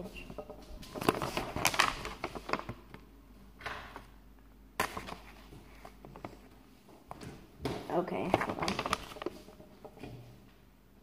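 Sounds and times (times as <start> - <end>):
paper rustling and crinkling: 0.8 - 3.1, 4.8 - 7.3, 8.1 - 9.6.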